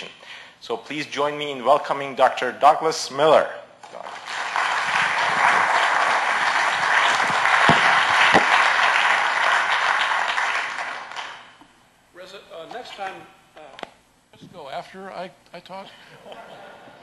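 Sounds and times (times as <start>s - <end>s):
audience applauding: 3.9s - 11.6s.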